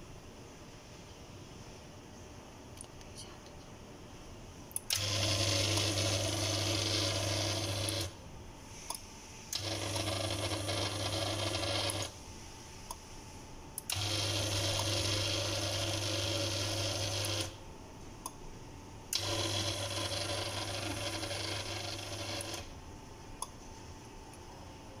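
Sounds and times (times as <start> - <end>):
gate motor humming and whirring: 4.7 - 18.4, 19.1 - 23.6.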